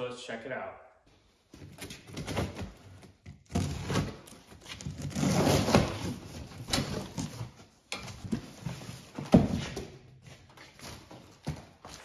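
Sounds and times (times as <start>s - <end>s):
cardboard scraping and rustling: 1.6s - 12.0s
knife cutting cardboard and tape: 1.7s - 7.5s.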